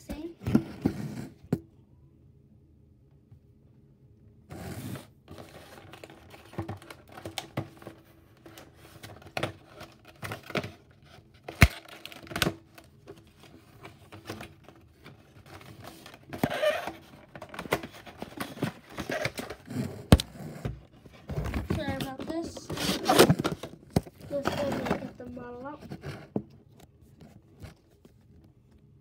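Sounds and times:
cardboard scraping and rustling: 4.5s - 12.5s, 13.1s - 28.2s.

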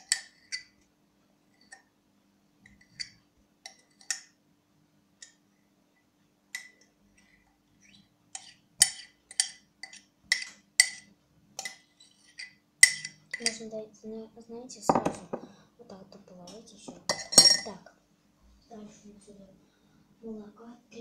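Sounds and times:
faint steady hum: 0.0s - 21.0s.

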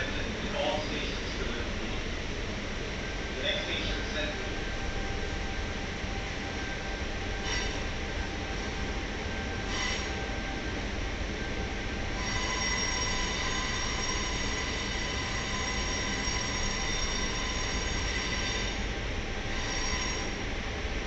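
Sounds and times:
train low rumble: 0.0s - 21.0s
wheel squeal against rails: 7.4s - 8.0s, 9.6s - 10.3s, 12.2s - 18.9s, 19.5s - 20.4s.

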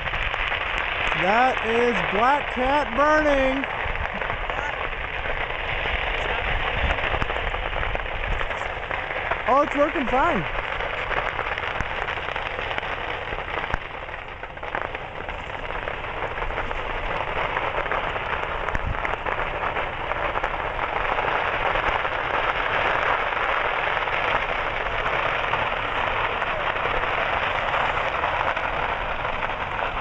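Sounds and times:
fire crackling hiss: 0.0s - 30.0s
fireworks popping: 0.0s - 30.0s.

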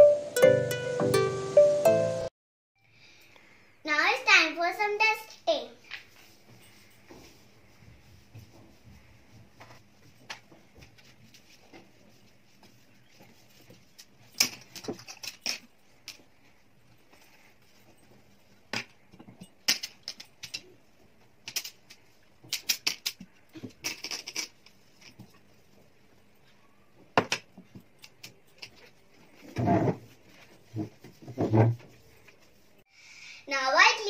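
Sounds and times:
cloth wiping glass: 29.0s - 32.8s.

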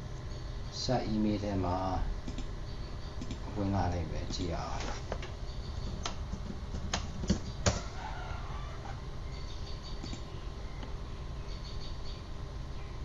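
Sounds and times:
steady low hum: 0.0s - 13.0s
bird chirps: 2.6s - 3.2s, 5.4s - 6.0s, 7.4s - 13.0s
computer mouse clicks: 3.2s - 3.4s, 10.0s - 10.9s.

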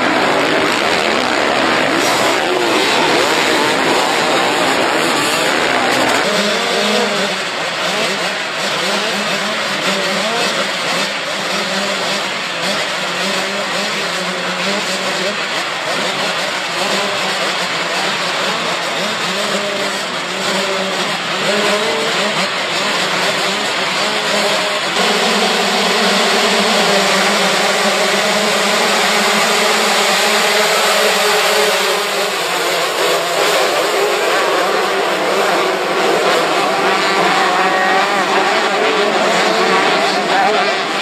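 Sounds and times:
motocross engines revving: 0.0s - 41.0s.

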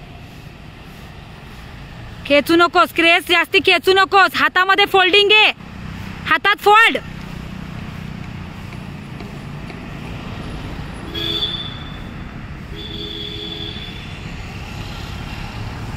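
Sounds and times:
horn-like tone: 11.1s - 12.1s.

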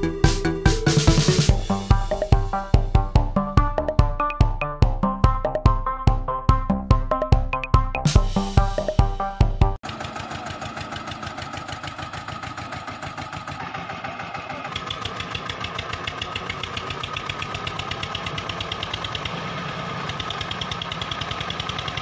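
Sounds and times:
tractor diesel engine knocking: 9.8s - 22.0s.

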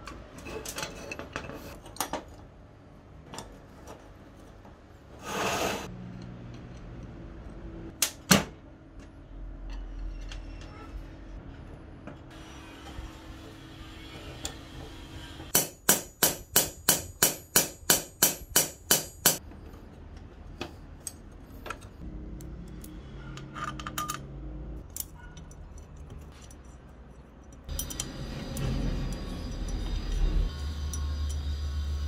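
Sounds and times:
metal parts clicking: 24.8s - 31.5s.

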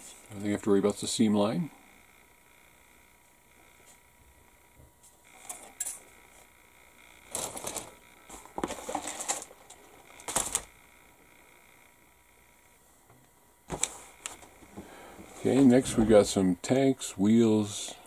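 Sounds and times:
plastic parts clattering: 7.3s - 10.7s.

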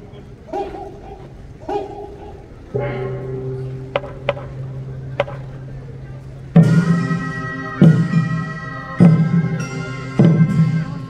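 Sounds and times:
pitched ringing: 0.0s - 11.0s
loud percussion strikes: 2.8s - 11.0s.

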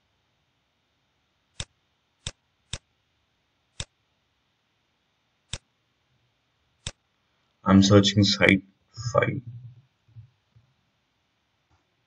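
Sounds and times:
computer mouse clicks: 1.6s - 2.9s, 3.8s - 4.0s, 5.5s - 5.7s, 6.8s - 7.0s.

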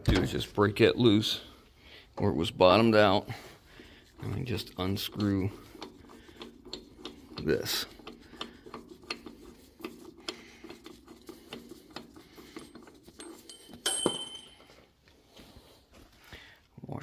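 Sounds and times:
metal tool scraping on threaded shaft: 2.6s - 14.7s
small irregular clicks: 5.1s - 12.6s
metal washer dropping with a clink: 13.2s - 14.8s.

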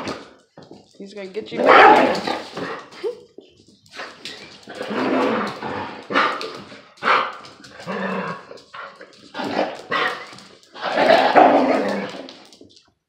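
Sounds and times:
dogs barking in play: 1.6s - 3.0s, 3.9s - 12.4s.

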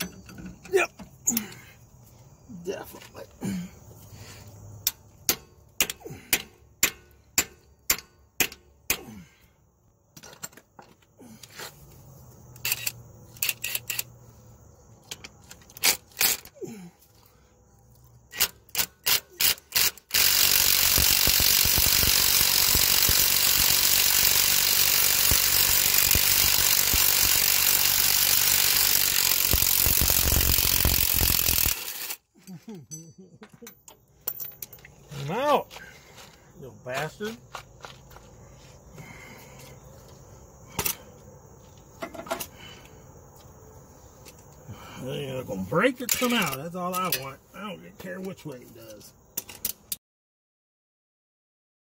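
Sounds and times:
hand ratchet clicking: 12.6s - 14.1s, 18.3s - 32.2s
loud mechanical machine noise: 18.3s - 32.2s.

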